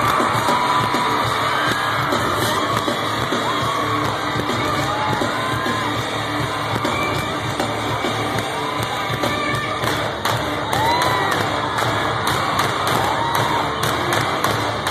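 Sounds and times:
fans screaming and whooping: 0:00.0 - 0:14.9
live pop music over pa: 0:00.0 - 0:14.9.

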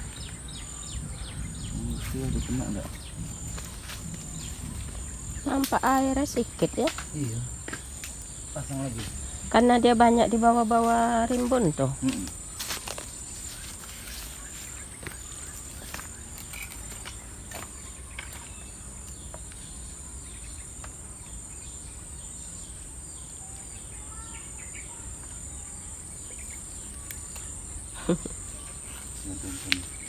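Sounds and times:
insects droning: 0:00.0 - 0:30.0
faint bird chirps: 0:21.5 - 0:30.0.

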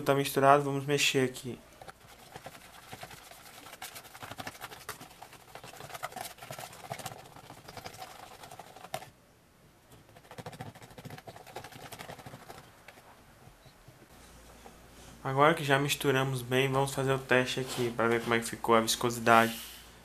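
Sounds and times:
spoon stirring thick liquid in plastic: 0:01.6 - 0:09.1, 0:09.9 - 0:13.6.

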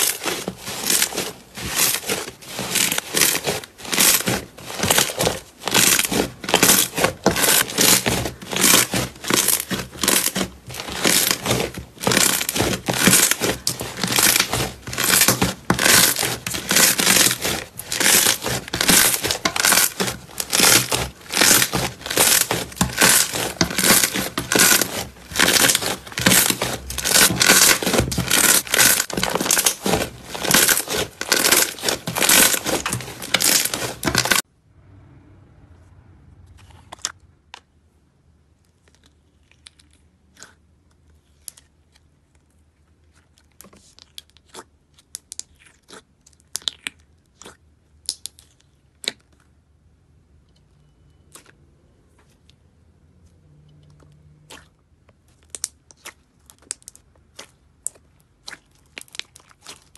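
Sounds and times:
slime crackling while kneaded: 0:00.0 - 0:34.4, 0:54.5 - 0:59.9.

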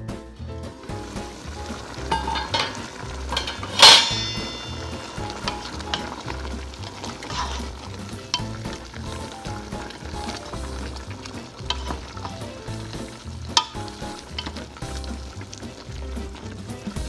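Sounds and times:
pot bubbling and sizzling: 0:00.0 - 0:17.0
wooden spoon stirring and scraping: 0:00.8 - 0:17.0
metallic clank: 0:01.6 - 0:08.8, 0:13.6 - 0:14.7.

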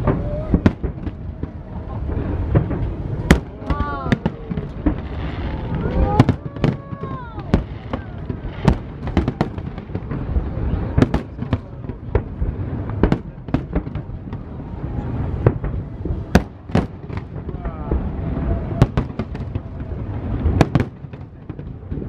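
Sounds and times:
continuous low rumble: 0:00.0 - 0:22.0
fireworks bangs: 0:00.0 - 0:22.0.

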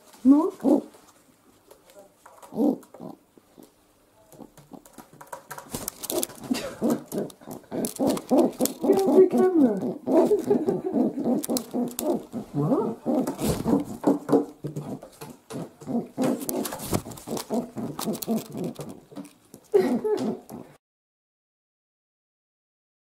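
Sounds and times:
pigeon cooing: 0:00.3 - 0:01.0, 0:02.4 - 0:05.0, 0:06.0 - 0:19.2, 0:19.8 - 0:20.8.

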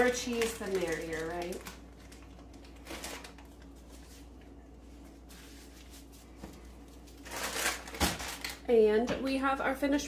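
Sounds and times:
plastic package rustling: 0:00.0 - 0:04.3, 0:06.7 - 0:08.7
low room hum: 0:00.0 - 0:10.0.

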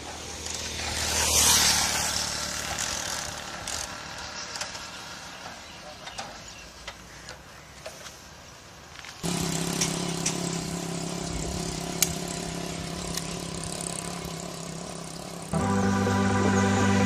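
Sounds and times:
motorcycle engine starting and idling: 0:09.2 - 0:17.0.

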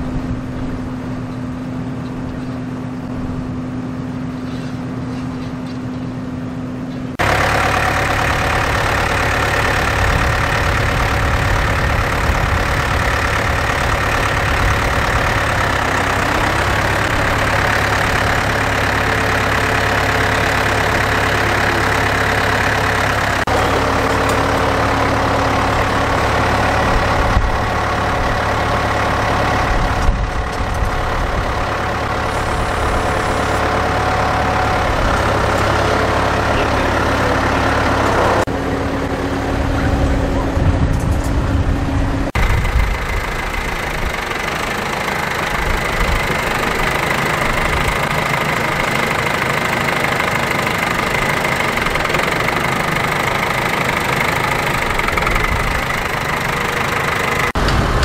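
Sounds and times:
tractor diesel engine running: 0:00.0 - 0:58.0.

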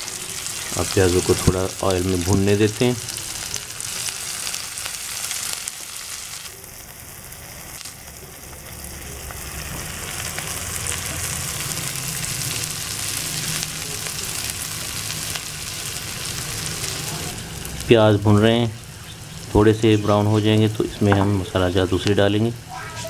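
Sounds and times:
onions sizzling in oil: 0:00.0 - 0:23.0.

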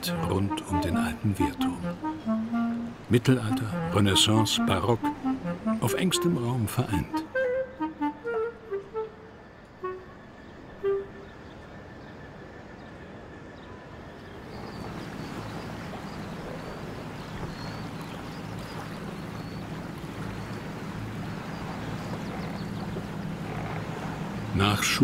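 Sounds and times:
barge engine drone: 0:00.0 - 0:11.6, 0:14.7 - 0:25.0
faint music notes: 0:00.0 - 0:12.4, 0:14.5 - 0:25.0
water wash: 0:14.4 - 0:25.0.

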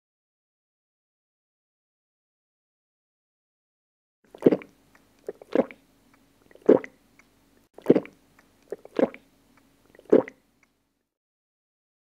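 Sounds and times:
person gulping a drink: 0:04.3 - 0:05.8, 0:06.4 - 0:07.0, 0:07.8 - 0:09.3, 0:09.9 - 0:10.4.

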